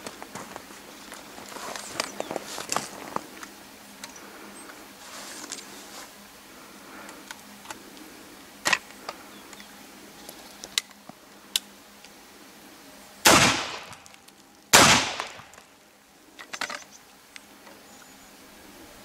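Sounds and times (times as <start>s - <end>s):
shotgun shots echoing: 13.2s - 14.0s, 14.7s - 15.6s.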